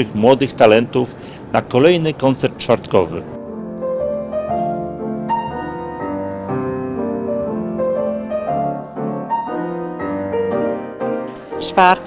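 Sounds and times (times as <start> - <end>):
grand piano playing: 3.3 - 12.0.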